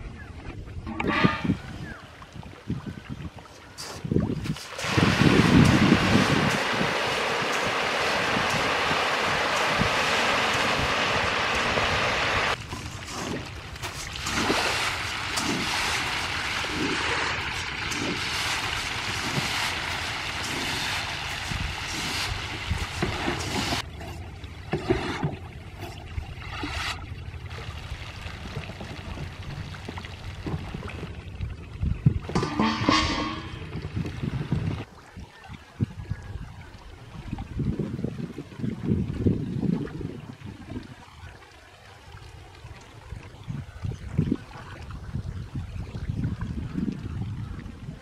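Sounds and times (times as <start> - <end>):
fish splashing: 4.5 - 23.9
feed pellets showering onto water: 4.6 - 23.8.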